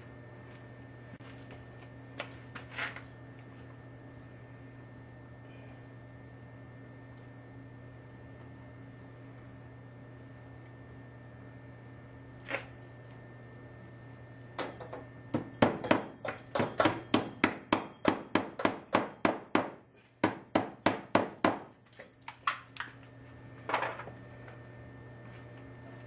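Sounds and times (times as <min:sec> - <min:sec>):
hammer striking nail into wood: 0:14.6 - 0:21.7.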